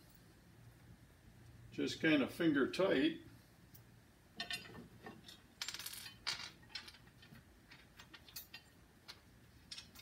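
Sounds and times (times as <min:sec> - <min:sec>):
metallic clicks and rattles: 0:04.4 - 0:10.0.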